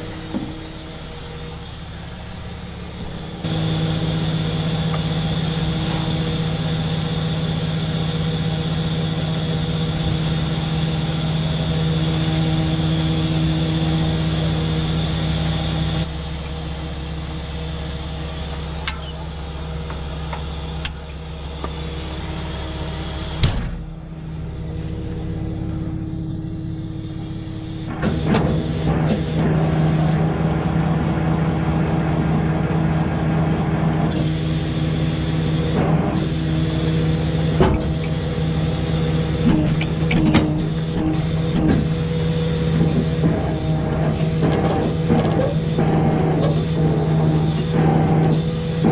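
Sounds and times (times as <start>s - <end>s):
truck engine running: 0.0s - 48.9s
winch gear clicks: 18.8s - 21.8s.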